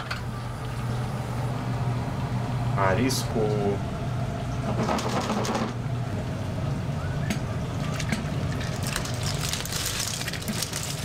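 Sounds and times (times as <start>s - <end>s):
water boiling in a pot: 7.8s - 11.0s
liquid pouring and splashing: 8.0s - 11.0s.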